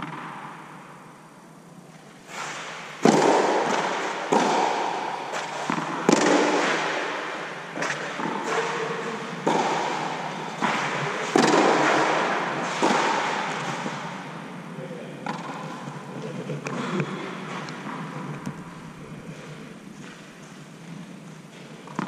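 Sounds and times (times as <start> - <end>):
tennis ball bouncing: 0.0 - 0.6, 3.0 - 14.4, 15.2 - 19.0, 20.9 - 22.0
tennis ball hit by rackets: 2.5 - 14.4, 15.2 - 15.8.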